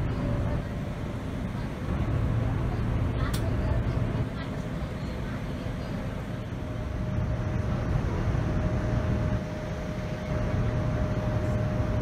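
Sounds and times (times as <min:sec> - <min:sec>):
aircraft engine and airflow rumble: 0:00.0 - 0:12.0
thin steady whine: 0:00.0 - 0:12.0.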